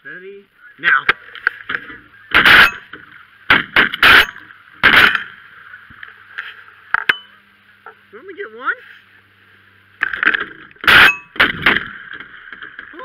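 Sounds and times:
geese honking: 0:00.5 - 0:04.2
shotgun blasts: 0:02.3 - 0:02.9, 0:03.5 - 0:05.3, 0:10.9 - 0:11.8.

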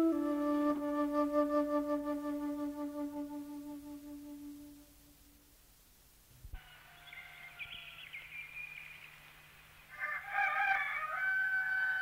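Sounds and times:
roosters crowing: 0:06.6 - 0:08.2, 0:09.9 - 0:12.0.

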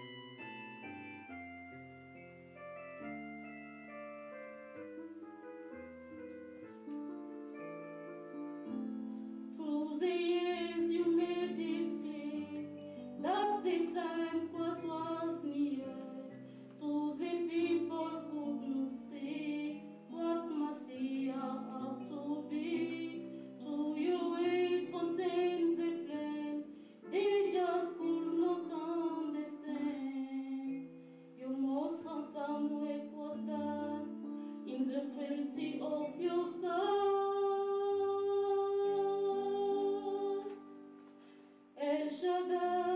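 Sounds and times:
sustained instrumental accompaniment: 0:00.0 - 0:15.1
voices singing slow melody: 0:02.2 - 0:42.9.

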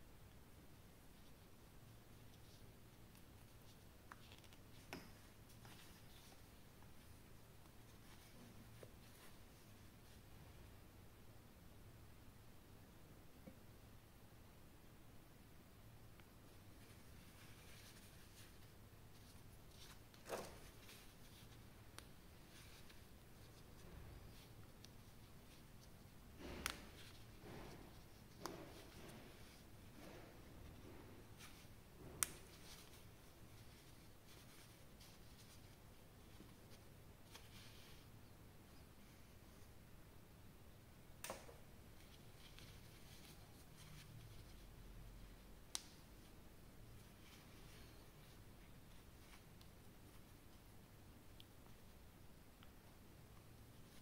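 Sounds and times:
faint light rustling: 0:16.2 - 0:39.8.

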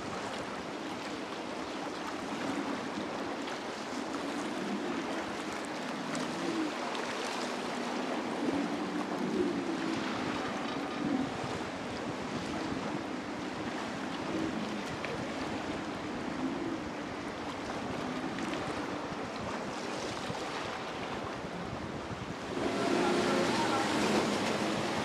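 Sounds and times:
distant outboard motor hum: 0:00.0 - 0:25.0
wind buffeting microphone: 0:07.8 - 0:25.0
surf crashing: 0:22.3 - 0:25.0.

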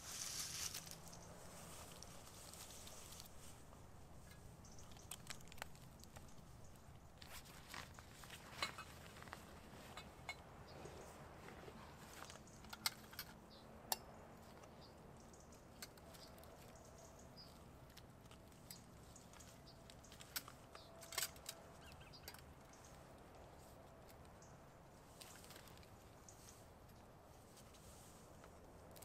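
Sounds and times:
rustling in a backpack: 0:00.0 - 0:12.7.

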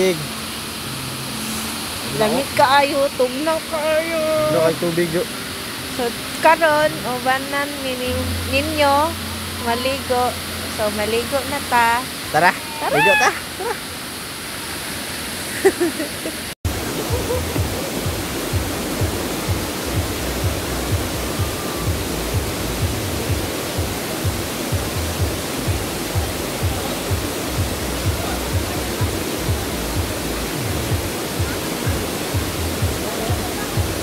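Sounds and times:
waterfall rushing: 0:00.0 - 0:34.0
background music with steady beat: 0:16.7 - 0:34.0.

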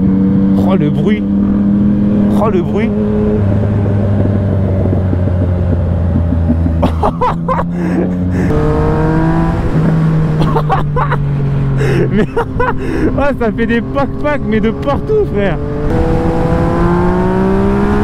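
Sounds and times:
motorcycle engine revving: 0:00.0 - 0:11.8, 0:12.5 - 0:18.0
exhaust crackles: 0:00.6 - 0:09.8.

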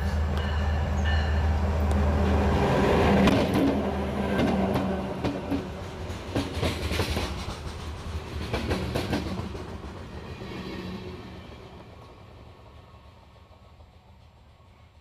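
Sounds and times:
train wheels clicking over rail joints: 0:03.1 - 0:10.8.

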